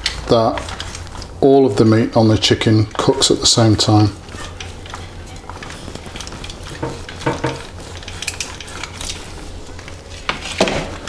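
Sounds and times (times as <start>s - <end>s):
knife scraping foil: 3.0s - 11.0s
knife knocking on chopping board: 6.8s - 7.6s.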